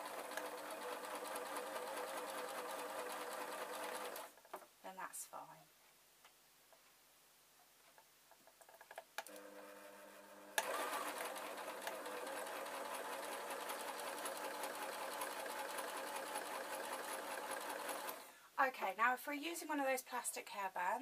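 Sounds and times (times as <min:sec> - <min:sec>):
sewing machine clicks: 0:00.0 - 0:02.2, 0:10.6 - 0:18.3
sewing machine stitching: 0:00.0 - 0:04.4, 0:08.6 - 0:18.3.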